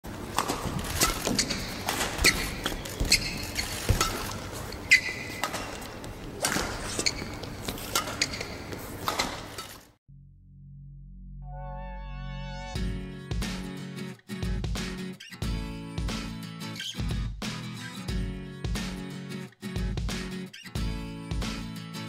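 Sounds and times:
short high squeaks: 1.0 - 4.1, 4.7 - 5.6.

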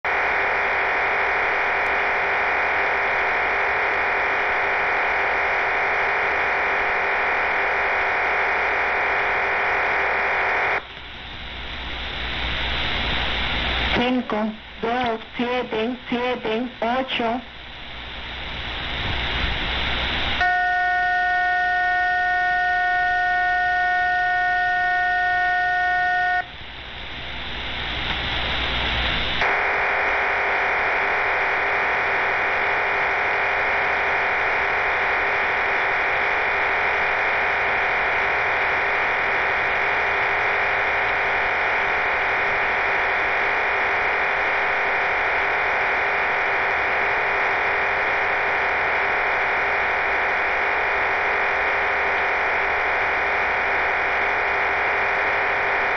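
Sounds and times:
radio hiss: 0.0 - 55.9
multi-tone data signal: 19.6 - 26.6
chord of steady tones: 20.4 - 26.5.

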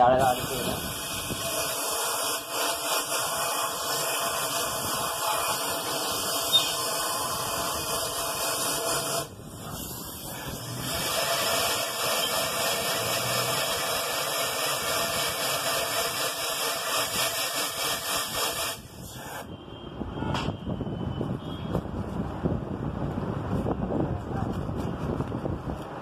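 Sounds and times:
compressed air hissing: 0.1 - 19.6.

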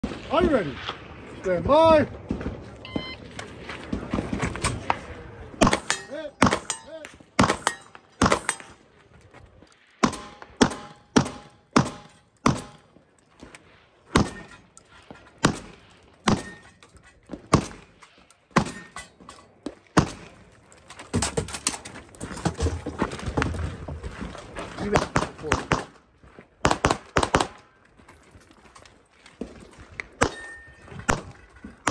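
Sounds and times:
shot timer beep: 2.8 - 3.2
handgun shots: 5.6 - 8.7.

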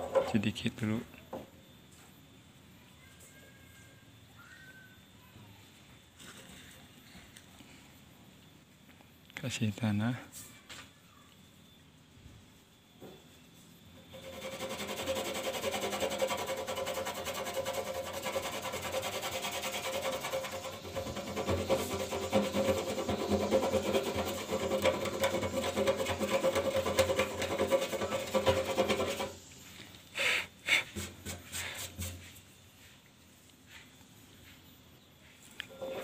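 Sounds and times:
fingertip rubbing soil on steel: 14.1 - 29.4.

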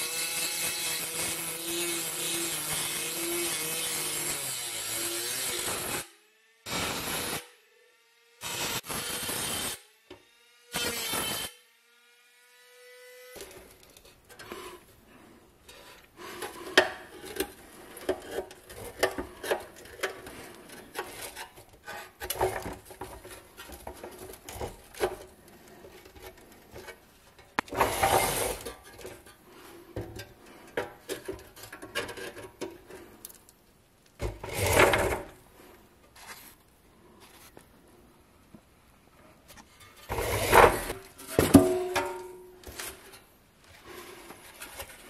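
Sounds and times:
metal rattling scrapes: 13.4 - 33.4
screwdriver scraping metal: 15.6 - 29.4.

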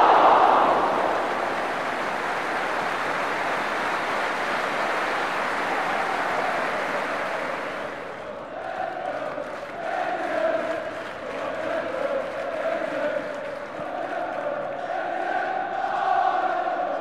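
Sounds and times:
spectators shouting: 0.0 - 8.0.

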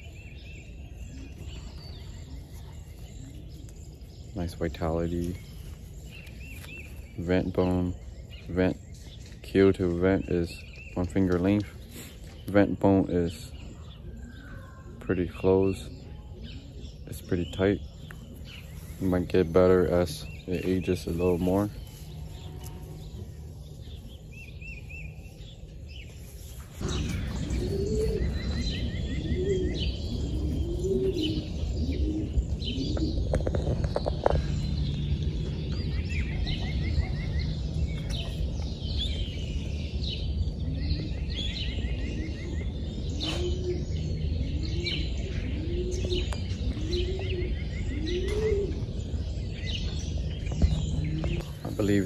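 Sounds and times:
birds chirping: 0.0 - 52.0
pigeons cooing: 11.6 - 52.0
steady low hum: 16.4 - 52.0.

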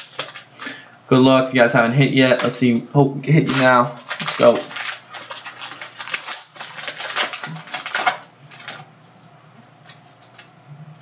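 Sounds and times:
plastic wrapper crinkling: 0.0 - 0.8, 2.3 - 9.0, 9.7 - 11.0.

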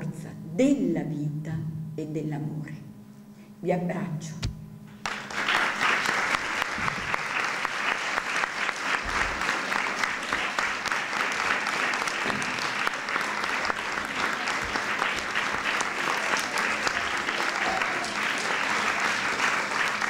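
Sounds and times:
audience applauding: 5.0 - 20.0.

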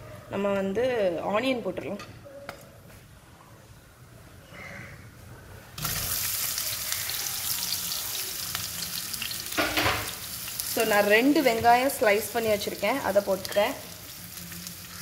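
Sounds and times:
onions sizzling in hot oil: 5.8 - 15.0.

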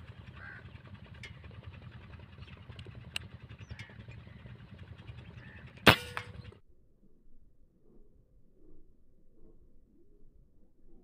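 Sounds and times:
faint bird calls: 0.0 - 6.6
low outdoor rumble: 0.0 - 11.0.

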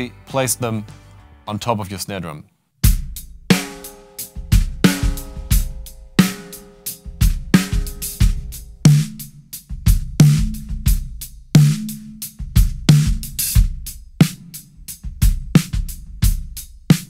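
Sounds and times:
drum kit groove: 2.8 - 17.0
muffled snare drum hits: 2.9 - 14.5
ringing snare drum hits: 3.5 - 9.3.

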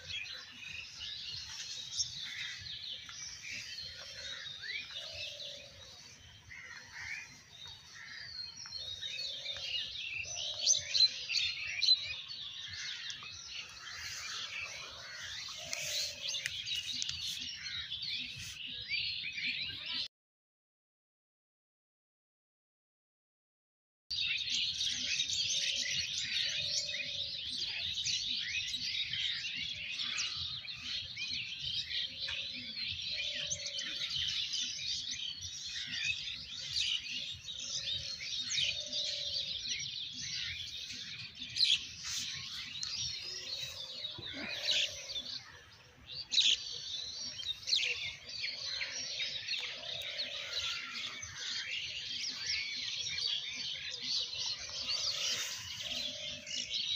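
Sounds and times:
small birds chirping: 0.0 - 20.1, 24.2 - 56.9.

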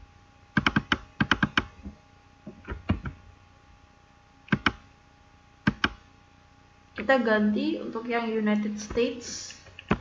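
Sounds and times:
keyboard keys clicking: 0.6 - 1.7, 4.5 - 4.8, 5.6 - 6.0.

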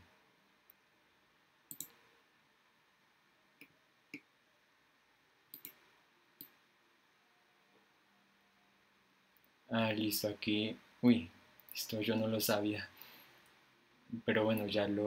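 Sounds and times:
computer mouse clicks: 1.7 - 2.0, 5.5 - 5.8.

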